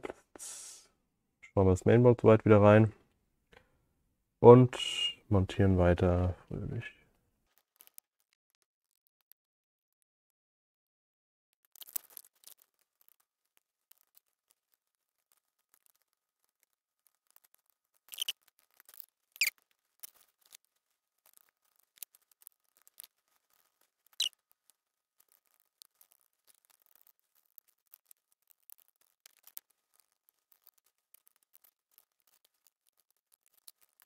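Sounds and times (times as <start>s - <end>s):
laptop parts clicking and scraping: 7.5s - 9.2s, 11.6s - 34.0s
short squeaks: 18.1s - 18.4s, 24.1s - 24.4s.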